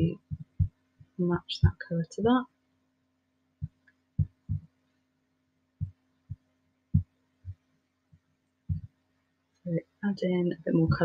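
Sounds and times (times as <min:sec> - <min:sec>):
dull low thumps: 0:00.0 - 0:01.9, 0:03.6 - 0:04.7, 0:05.8 - 0:07.6, 0:08.7 - 0:08.9.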